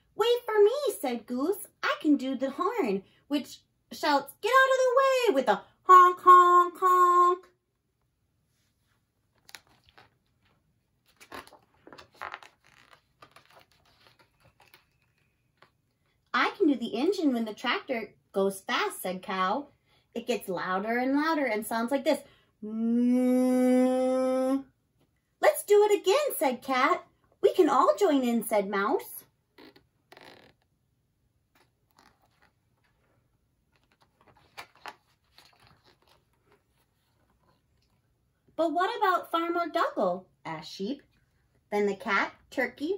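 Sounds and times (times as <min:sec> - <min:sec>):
book pages turning: 0:08.9 - 0:16.0, 0:31.4 - 0:38.1.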